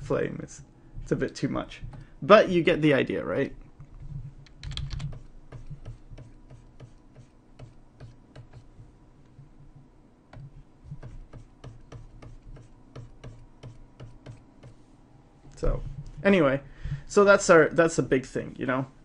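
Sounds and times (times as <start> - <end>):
faint low hum: 0.0 - 19.0
keyboard keys clicking: 4.5 - 5.2.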